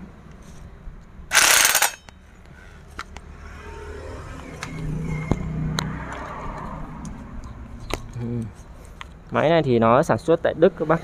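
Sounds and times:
sharp metal clicks: 1.3 - 2.2.

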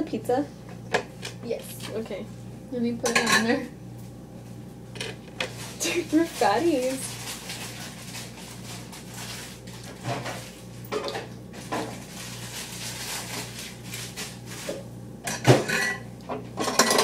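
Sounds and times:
dishes and cutlery clinking: 3.0 - 3.6, 10.0 - 12.0, 15.3 - 17.0.

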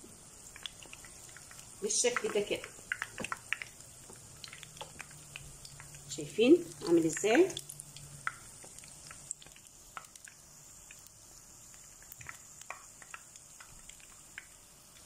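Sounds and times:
food deep-frying in oil: 0.0 - 15.0.

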